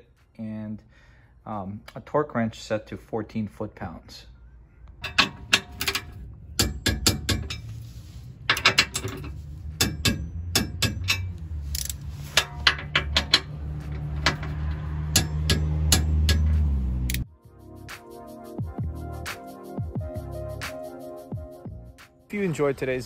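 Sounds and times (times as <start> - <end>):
torque wrench ratchet clicking: 10.1 - 12.0.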